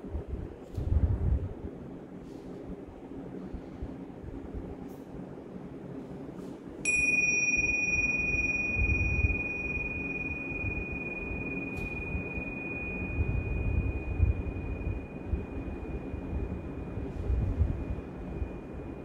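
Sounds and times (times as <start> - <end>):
small cymbals ringing: 6.8 - 19.0.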